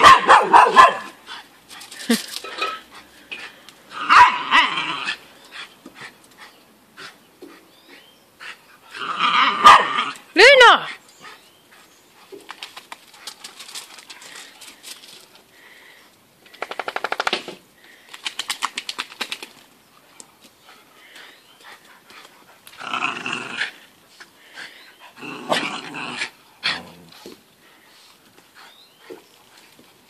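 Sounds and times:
dogs growling and yapping: 1.3 - 5.6, 8.4 - 10.2, 22.4 - 24.0, 24.6 - 27.4
rapid even clicking: 16.4 - 19.6.

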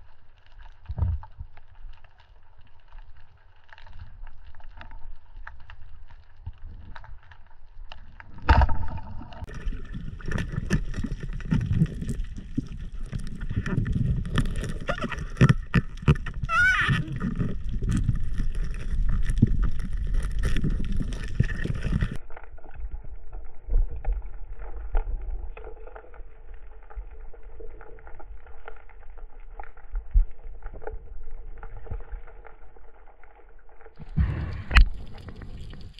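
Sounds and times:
loud underwater thump: 34.0 - 35.9.

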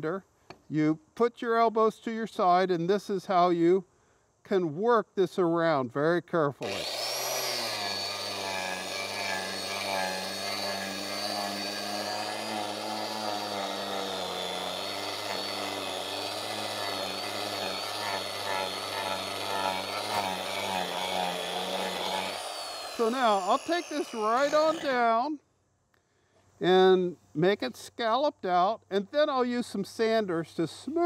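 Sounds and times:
angle grinder carving wood: 6.6 - 25.2.

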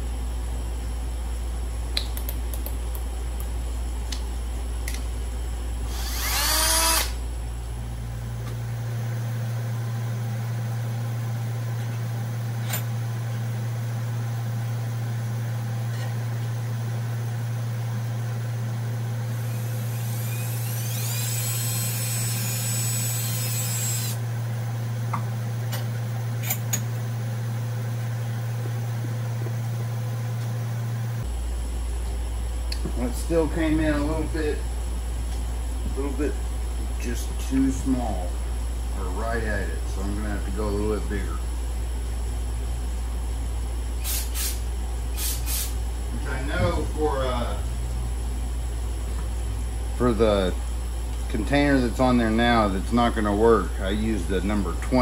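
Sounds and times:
steady low hum: 0.0 - 55.0
cordless drill whining: 5.9 - 7.2, 19.4 - 24.2.

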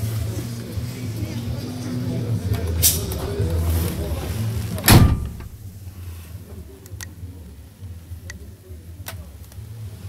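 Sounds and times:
low steady rumble: 3.2 - 6.4.

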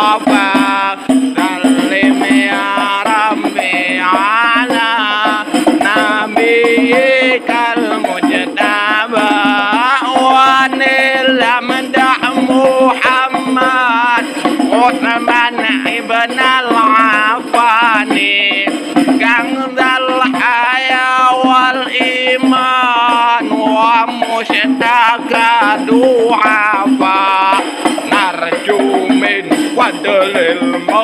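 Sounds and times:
person singing ornamented melody: 0.0 - 23.8
instrumental accompaniment: 0.0 - 31.0.

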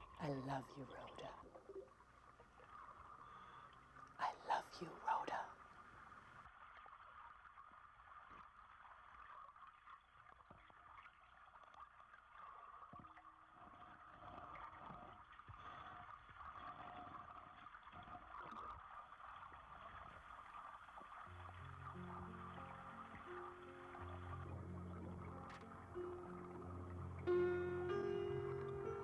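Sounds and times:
underwater gurgling and bubbling: 6.4 - 29.0.

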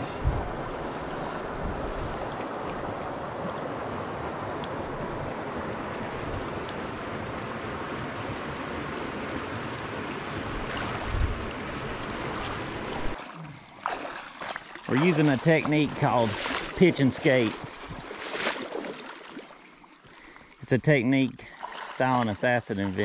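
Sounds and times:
wind on microphone: 0.0 - 3.0, 10.4 - 13.2
river current rushing: 0.0 - 20.4.

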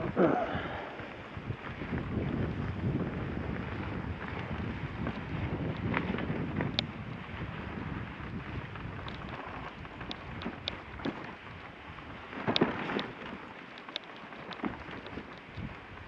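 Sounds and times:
sled runners hissing on snow: 0.0 - 16.0
light clicks: 12.5 - 15.8.

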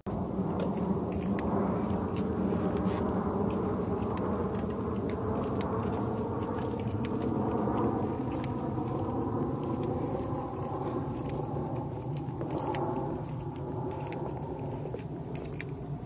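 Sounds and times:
footsteps on wooden boardwalk: 0.1 - 16.0
low rumble: 0.1 - 16.0.

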